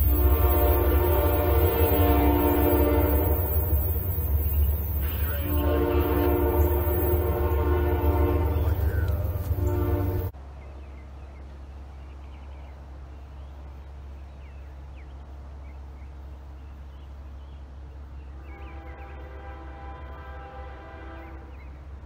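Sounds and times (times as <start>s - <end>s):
distant locomotive horn: 0.0s - 10.4s, 18.4s - 22.0s
steady low rumble: 0.0s - 18.6s
birds chirping: 0.0s - 19.6s, 21.2s - 22.0s.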